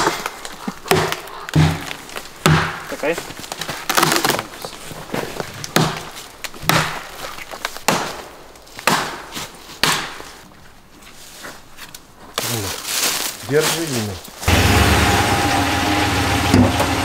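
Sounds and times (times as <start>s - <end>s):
wood chopping blows: 0.0s - 4.4s, 5.7s - 10.3s.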